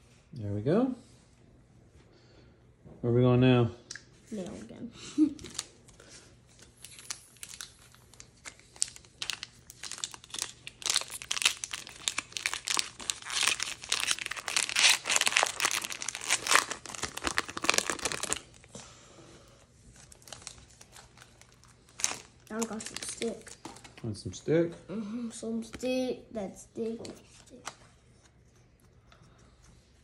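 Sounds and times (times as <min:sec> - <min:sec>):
foil wrapper crinkling: 0:05.3 - 0:18.7, 0:19.9 - 0:24.0.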